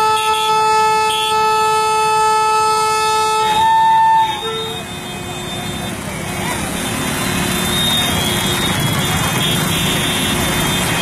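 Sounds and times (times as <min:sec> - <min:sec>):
train horn blast: 0:00.0 - 0:04.9.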